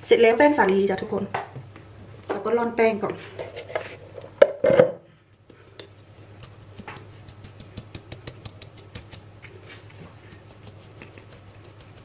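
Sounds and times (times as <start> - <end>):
hand tapping metal sieve: 5.5 - 9.3.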